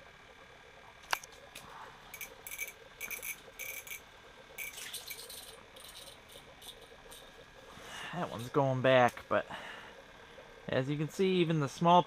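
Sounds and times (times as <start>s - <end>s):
fishing reel being cranked: 2.1s - 7.4s.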